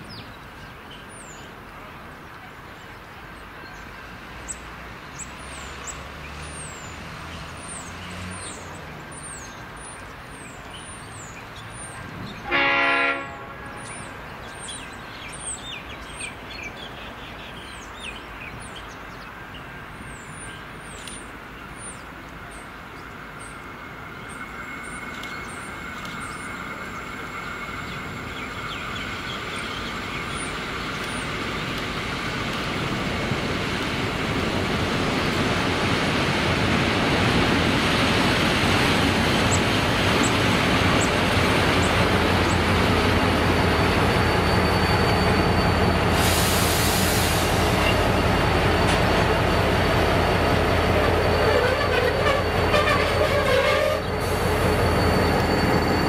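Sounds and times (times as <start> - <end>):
train wheel noise: 17.8 - 56.0
locomotive engine rumble: 20.7 - 56.0
high squeal of wheels: 43.0 - 48.0, 50.7 - 56.0
loud hiss: 44.1 - 48.4.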